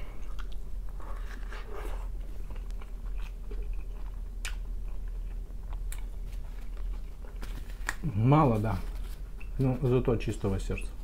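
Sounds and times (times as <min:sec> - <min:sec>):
person chewing food: 0:00.0 - 0:08.0.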